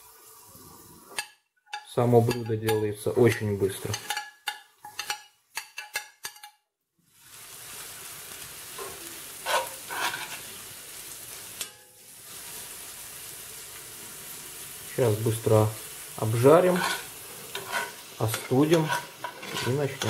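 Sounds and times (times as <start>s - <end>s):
vegetables sizzling in oil: 7.0s - 20.0s
metal spoon scraping plastic cup: 16.7s - 20.0s.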